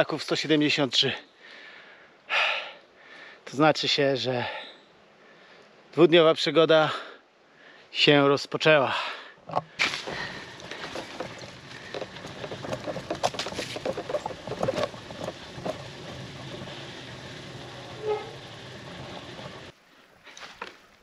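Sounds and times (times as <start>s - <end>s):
bike rattles and knocks: 9.5s - 19.7s
bike tyre and wind noise: 9.8s - 19.8s.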